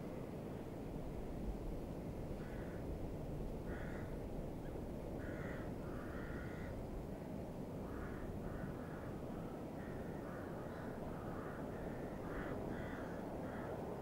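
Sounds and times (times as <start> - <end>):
crows cawing: 2.4 - 2.9, 3.7 - 4.2, 5.2 - 6.8, 7.8 - 13.8.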